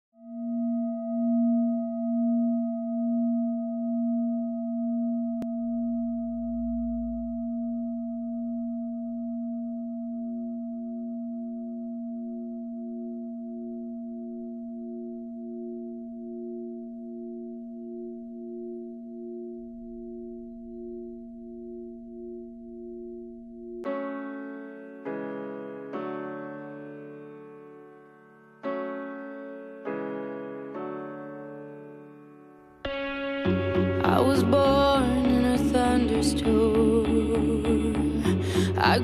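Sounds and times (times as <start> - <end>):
ringing drone: 0.2 - 23.9
wavering tone: 0.2 - 23.9.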